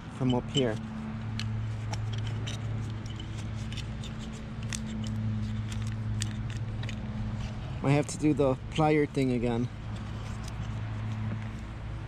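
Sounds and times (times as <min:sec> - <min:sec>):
plastic connector clicks and scrapes: 0:00.6 - 0:08.2, 0:09.9 - 0:11.7.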